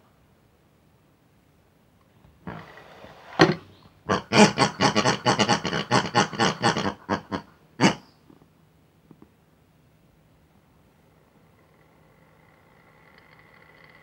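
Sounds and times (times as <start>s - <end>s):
pig-like grunts and oinks: 2.4s - 2.8s, 3.4s - 8.1s.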